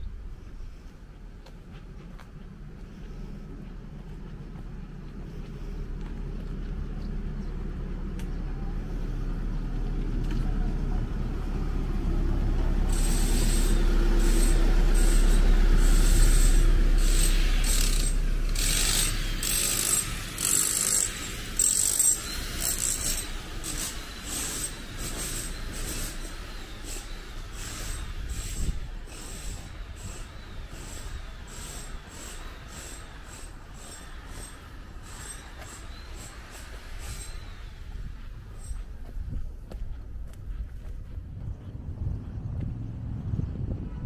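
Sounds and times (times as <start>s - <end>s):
heavy vehicle engine rumble: 0.0s - 44.0s
high squeaks and hisses: 12.9s - 39.0s.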